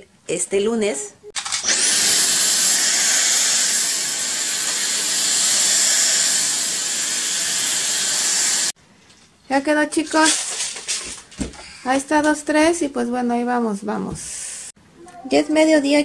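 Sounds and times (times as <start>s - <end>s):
stick vacuum cleaner running: 1.4s - 8.8s.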